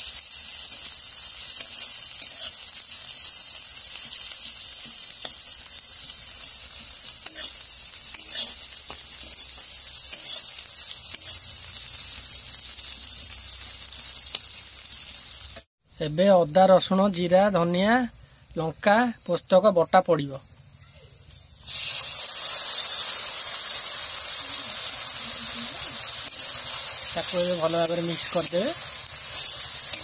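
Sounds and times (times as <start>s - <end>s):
onions sizzling in hot oil: 0.0s - 18.8s, 21.4s - 30.0s
metal spatula scraping pan: 6.8s - 11.4s.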